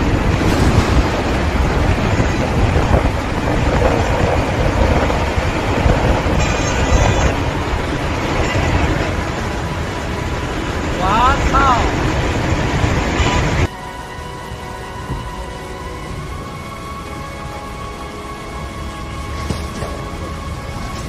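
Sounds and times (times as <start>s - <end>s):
tornado winds rushing: 0.0s - 21.0s.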